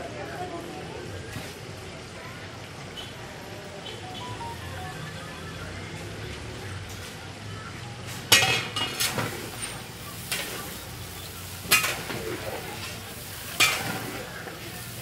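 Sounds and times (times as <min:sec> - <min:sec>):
onions sizzling in a pot: 0:08.5 - 0:15.0.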